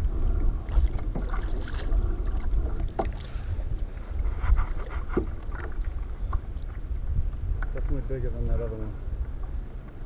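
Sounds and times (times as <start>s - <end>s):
knocks and splashes of a fish: 0.0s - 6.8s
water sloshing around a kayak: 0.0s - 10.0s
wind rumbling on microphone: 0.0s - 10.0s.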